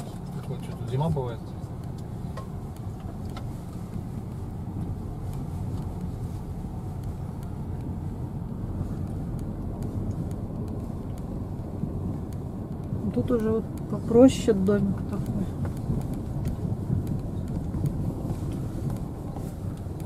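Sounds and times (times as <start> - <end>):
car engine and tyres rumbling: 0.0 - 20.0
faint clicks: 0.4 - 20.0.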